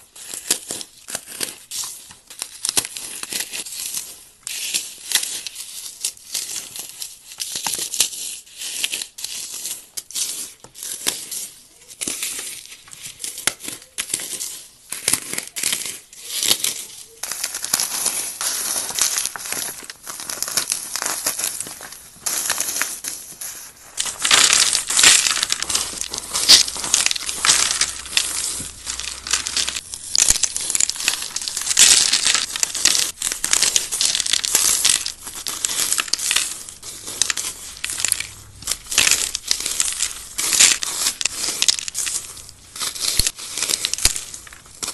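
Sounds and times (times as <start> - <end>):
floral foam crunching: 12.6 - 44.9.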